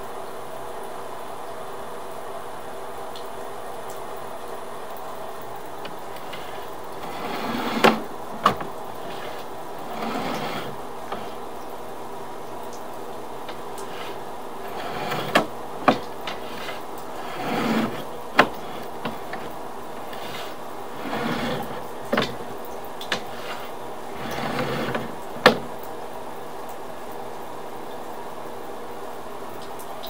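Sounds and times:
cable rubbing and scraping: 5.8 - 11.4, 13.5 - 25.8
sharp clicks and knocks: 5.8 - 11.4, 13.5 - 25.8.

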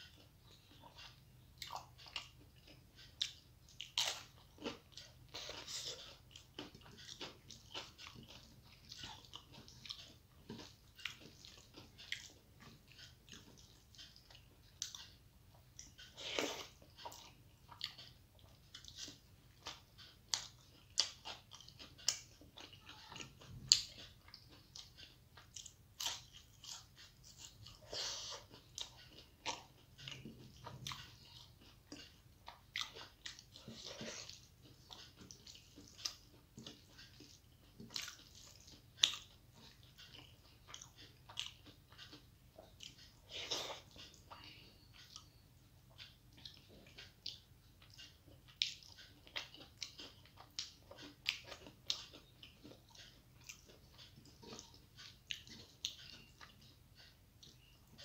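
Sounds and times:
wet chewing mouth clicks: 15.8 - 58.0.

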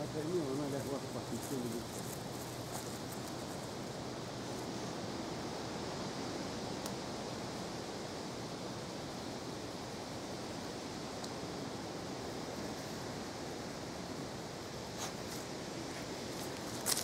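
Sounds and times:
outdoor ambient hiss: 0.0 - 17.0.

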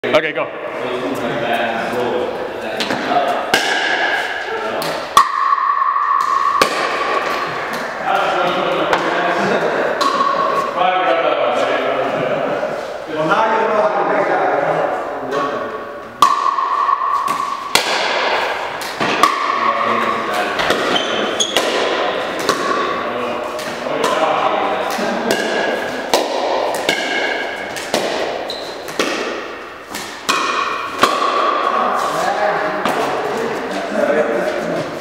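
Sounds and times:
paddles hitting plastic ball: 2.8 - 4.2, 4.8 - 9.2, 16.2 - 19.6, 20.4 - 31.8.

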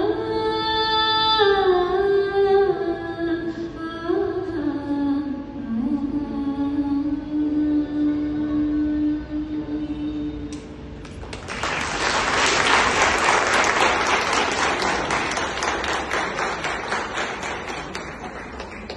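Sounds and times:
audience applause: 11.2 - 18.9.

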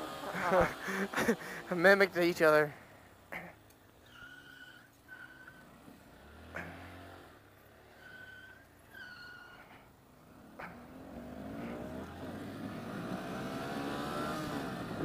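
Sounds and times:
motorcycle engine revving: 0.0 - 2.5, 5.1 - 15.0
short high squeaks: 4.0 - 5.7, 7.7 - 9.9.

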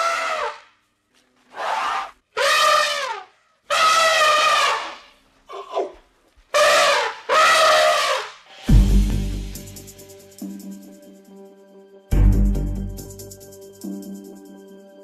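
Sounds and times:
elephants trumpeting: 1.5 - 5.1, 6.6 - 8.4.

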